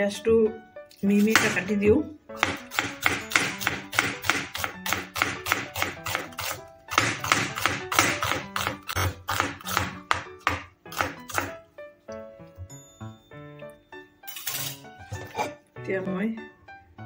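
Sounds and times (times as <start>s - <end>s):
background music: 0.0s - 17.0s
knife slicing onion on cutting board: 1.1s - 1.7s, 2.4s - 11.6s.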